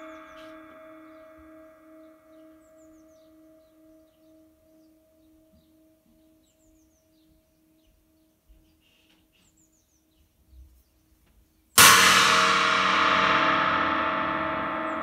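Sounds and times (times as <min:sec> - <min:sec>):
cymbal crash: 0:11.8 - 0:15.0.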